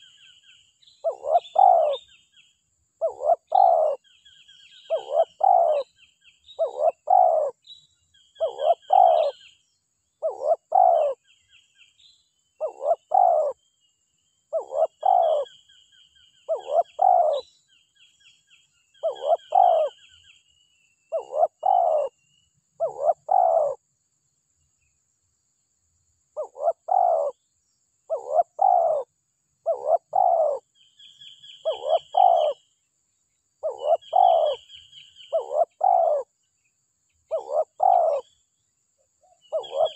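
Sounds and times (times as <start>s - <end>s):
bird chirps: 0.0s - 23.8s, 26.3s - 39.9s
dove cooing: 1.0s - 2.2s, 3.0s - 4.1s, 4.8s - 5.9s, 6.6s - 7.6s, 8.4s - 9.5s, 10.2s - 11.3s, 12.6s - 13.6s, 14.5s - 15.6s, 16.5s - 17.4s, 19.0s - 20.2s, 21.1s - 22.2s, 22.8s - 23.8s, 26.4s - 27.4s, 28.1s - 30.7s, 31.6s - 32.6s, 33.6s - 36.3s, 37.3s - 38.3s, 39.3s - 39.9s.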